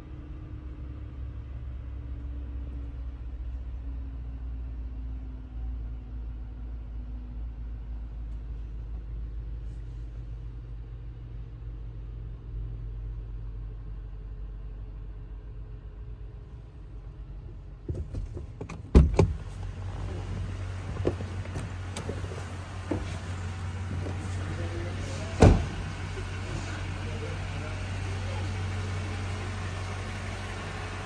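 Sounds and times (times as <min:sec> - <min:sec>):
car engine idling: 0:00.0 - 0:31.0.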